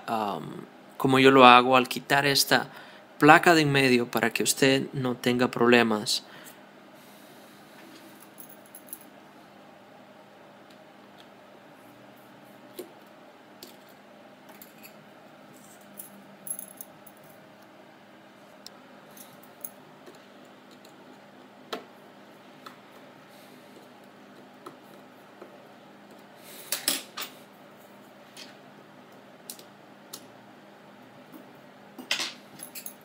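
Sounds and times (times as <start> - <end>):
metal clinks: 16.0 - 17.3.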